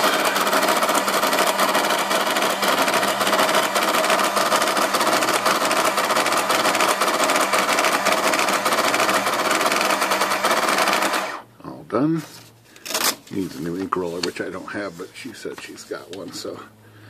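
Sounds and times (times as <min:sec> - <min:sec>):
receipt printer clattering: 0:00.0 - 0:11.3.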